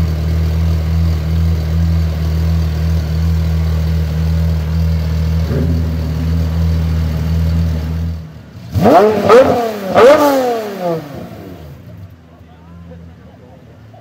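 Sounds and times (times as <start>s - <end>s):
car engine idling: 0.0s - 14.0s
engine revving: 5.2s - 12.0s.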